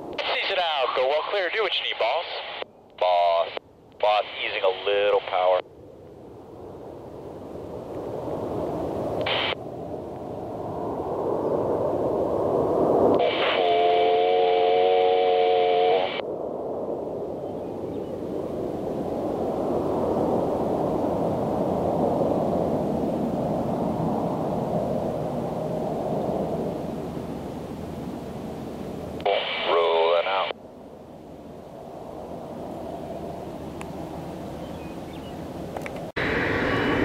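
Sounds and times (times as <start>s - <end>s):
jet engines rushing: 0.0s - 5.7s, 6.4s - 37.0s
radio humming tones: 0.2s - 5.6s, 9.2s - 9.6s, 13.2s - 16.2s, 29.1s - 30.6s
scanner radio burst: 0.2s - 5.6s, 9.2s - 9.6s, 13.2s - 16.2s, 29.2s - 30.6s.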